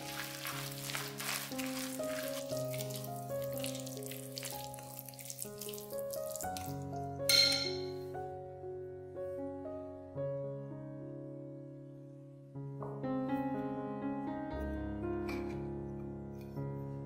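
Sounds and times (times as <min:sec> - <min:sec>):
spoon stirring wet batter: 0:00.0 - 0:07.5
piano music: 0:00.0 - 0:17.0
spoon clinking on glass bowl: 0:07.3 - 0:08.0.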